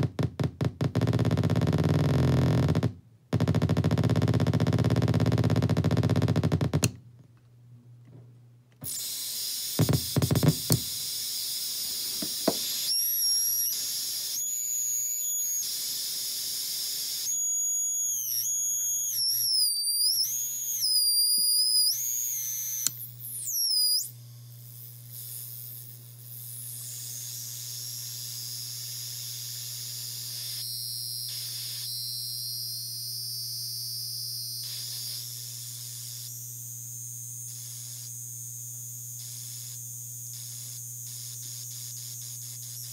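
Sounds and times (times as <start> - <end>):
static hiss: 8.8 - 14.4
high-pitched whistling tones: 10.9 - 24.1.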